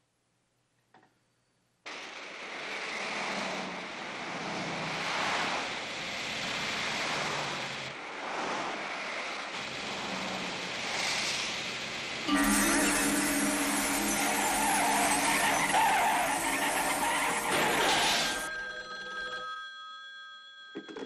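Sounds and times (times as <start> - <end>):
freeway traffic passing: 1.9 - 12.3.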